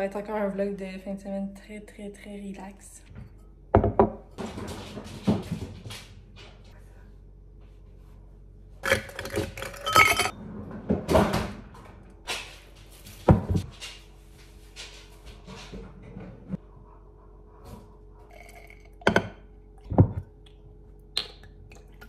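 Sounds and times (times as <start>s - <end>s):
knocks on countertop: 3.8s - 4.2s
ice cubes clinking in glass: 8.8s - 10.3s.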